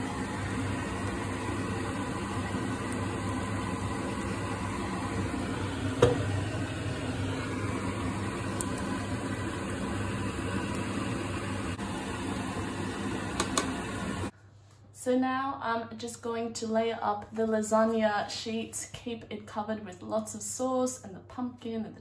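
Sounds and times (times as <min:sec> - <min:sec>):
vegetables sizzling in a saucepan: 0:00.0 - 0:14.3.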